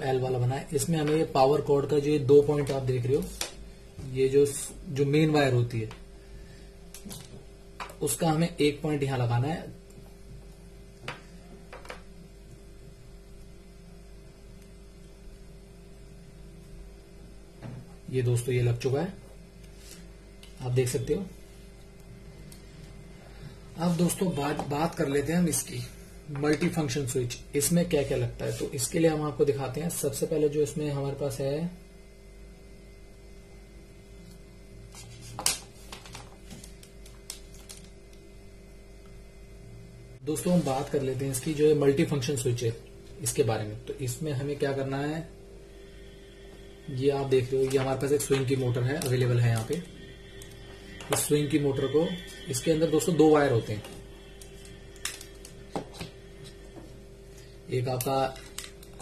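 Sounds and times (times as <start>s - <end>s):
faint steady hum: 0.0s - 59.0s
wires handling: 6.9s - 8.0s, 9.9s - 12.1s, 34.3s - 38.3s, 47.4s - 51.4s, 53.6s - 59.0s.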